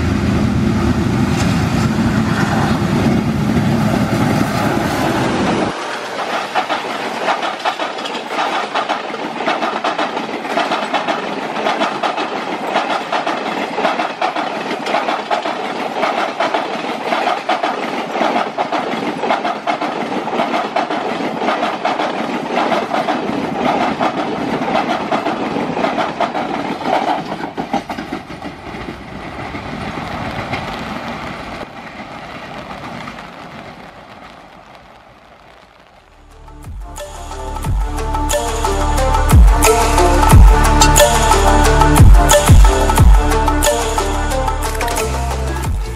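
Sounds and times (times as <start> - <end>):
train wheels clattering over rail joints: 4.1 - 34.2.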